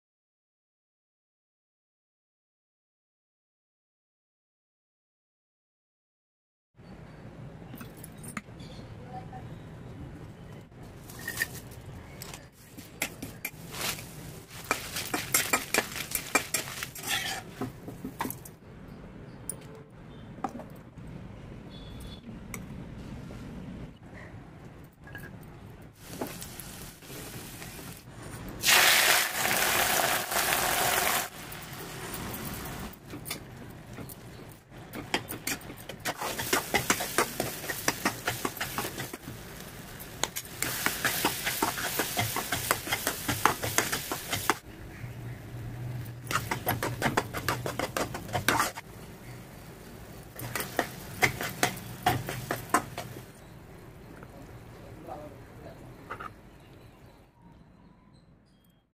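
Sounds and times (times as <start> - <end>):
steel spoon scraping iron pan: 14.7 - 17.6, 46.3 - 48.8
oil sizzling loudly: 26.0 - 32.9, 36.1 - 44.6, 46.3 - 53.4.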